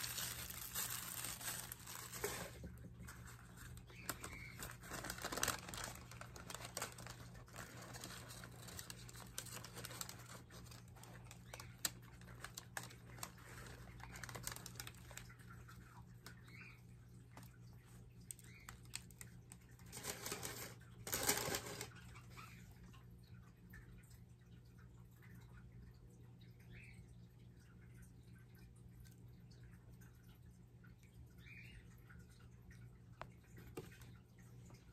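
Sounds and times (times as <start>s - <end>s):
paper wrapping rustling: 0.0s - 15.2s, 19.8s - 21.9s.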